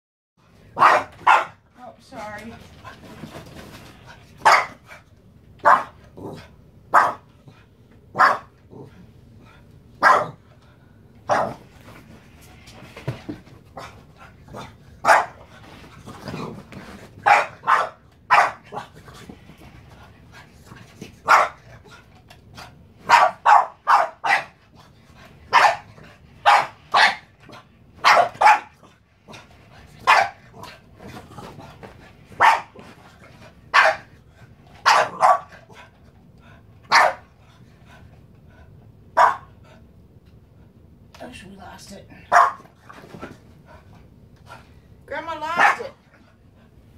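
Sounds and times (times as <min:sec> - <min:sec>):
small dog barking: 0:00.8 - 0:01.6, 0:04.4 - 0:04.8, 0:05.6 - 0:06.0, 0:06.9 - 0:07.2, 0:08.1 - 0:08.5, 0:10.0 - 0:10.4, 0:11.3 - 0:11.6, 0:15.0 - 0:15.4, 0:17.2 - 0:18.8, 0:21.2 - 0:21.6, 0:23.0 - 0:24.6, 0:25.5 - 0:27.3, 0:28.0 - 0:28.8, 0:30.0 - 0:30.4, 0:32.4 - 0:32.8, 0:33.7 - 0:34.1, 0:34.8 - 0:35.6, 0:36.9 - 0:37.2, 0:39.2 - 0:39.5, 0:42.3 - 0:42.6, 0:45.6 - 0:45.9.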